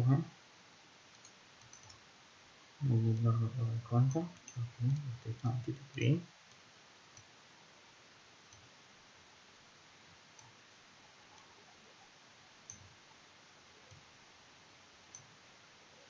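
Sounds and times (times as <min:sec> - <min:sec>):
low hiss: 0:00.0 - 0:16.0
computer mouse clicks: 0:01.1 - 0:02.0, 0:10.4 - 0:10.6, 0:11.3 - 0:11.5.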